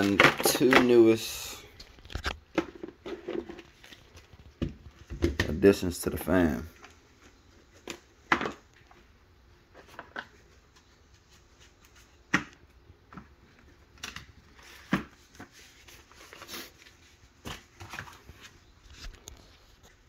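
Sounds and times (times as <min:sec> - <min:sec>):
plastic cases clicking and knocking: 0:00.0 - 0:05.8, 0:07.8 - 0:09.0.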